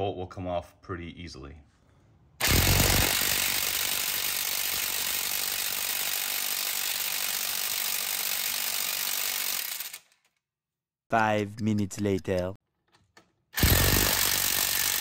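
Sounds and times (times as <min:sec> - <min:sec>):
impact wrench hammering: 0:02.4 - 0:08.3, 0:13.6 - 0:15.0.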